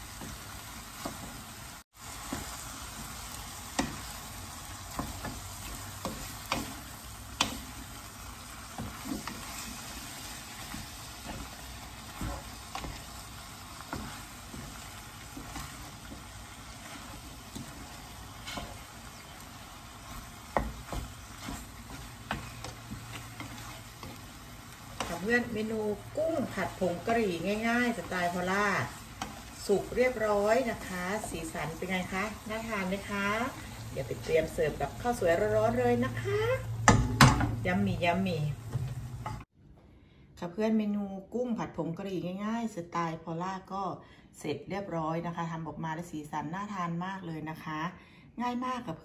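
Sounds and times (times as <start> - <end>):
stir-fry sizzling in a pan: 0.0 - 39.5
spatula knocking and scraping pan: 2.2 - 8.0, 8.6 - 38.0, 38.6 - 39.5.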